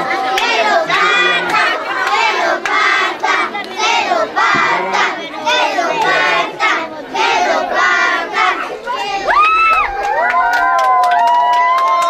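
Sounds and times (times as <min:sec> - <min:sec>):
children shouting and chanting: 0:00.0 - 0:10.9
hand claps: 0:01.4 - 0:03.8, 0:09.3 - 0:12.0.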